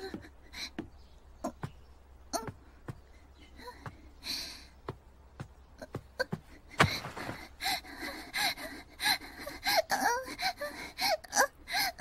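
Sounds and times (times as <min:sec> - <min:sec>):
woman moaning and gasping: 0:07.4 - 0:12.0.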